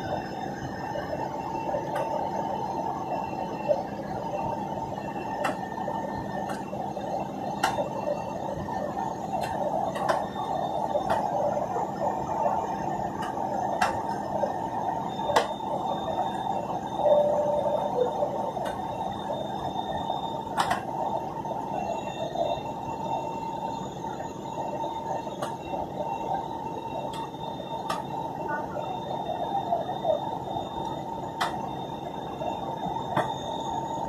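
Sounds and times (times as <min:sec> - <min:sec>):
airliner cabin noise: 0:00.0 - 0:34.0.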